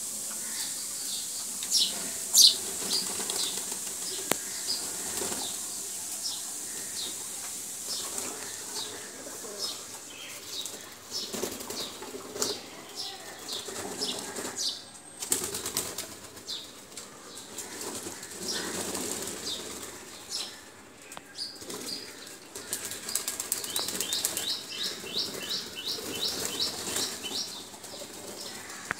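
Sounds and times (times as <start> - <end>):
pigeons flapping wings: 2.6 - 5.7, 10.6 - 12.7, 15.2 - 20.1, 21.6 - 28.9.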